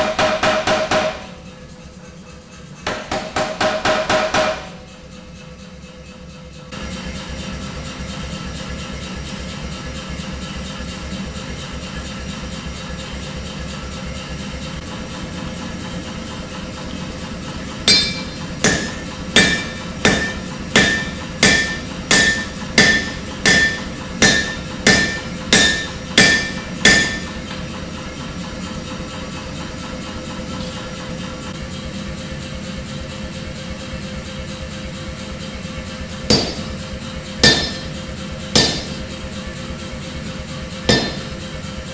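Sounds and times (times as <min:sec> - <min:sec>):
hammer ringing on anvil: 0:00.0 - 0:01.4, 0:02.9 - 0:04.9, 0:17.9 - 0:27.4, 0:36.3 - 0:36.8, 0:37.4 - 0:38.0, 0:38.6 - 0:39.0, 0:40.9 - 0:41.5
gas forge roaring: 0:06.7 - 0:41.9.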